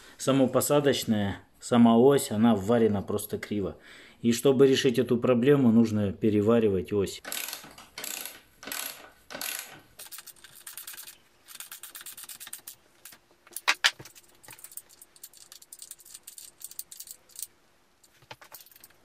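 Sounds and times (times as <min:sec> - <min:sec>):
wrench ratcheting: 0:07.3 - 0:12.8, 0:13.6 - 0:17.5.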